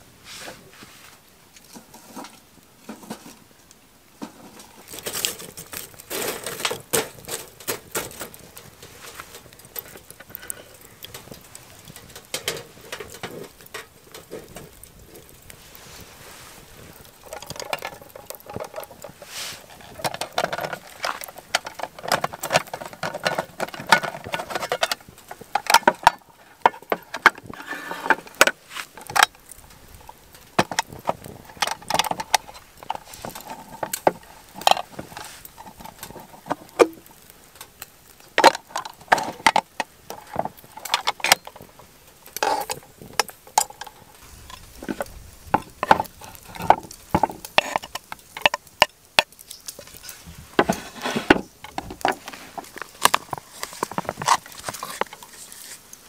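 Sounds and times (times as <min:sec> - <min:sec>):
camp cooking gear clattering: 0:01.5 - 0:56.0.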